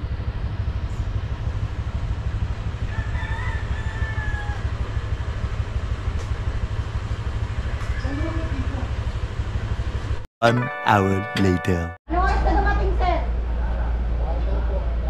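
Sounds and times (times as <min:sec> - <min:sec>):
rooster crowing: 0:02.9 - 0:04.7.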